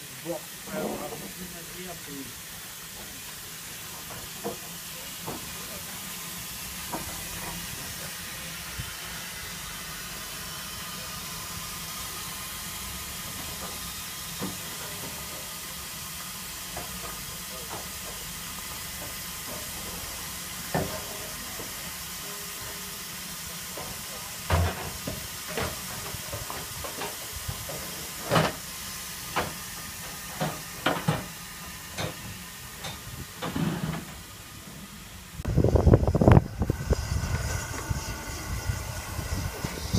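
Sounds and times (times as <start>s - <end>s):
steam hissing: 0.0s - 39.9s.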